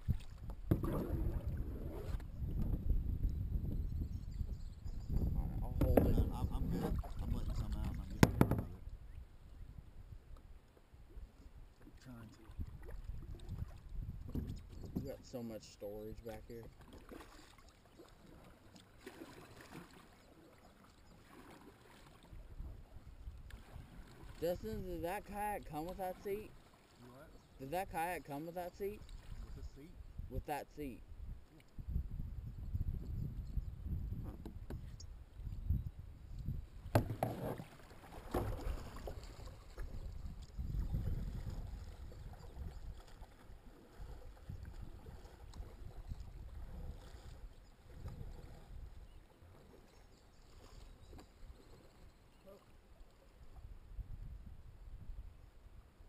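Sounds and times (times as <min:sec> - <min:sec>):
water lapping against hull: 0:00.0 - 0:03.1, 0:05.1 - 0:09.3, 0:11.0 - 0:30.2, 0:36.4 - 0:53.8
soft knocks: 0:08.2 - 0:08.8.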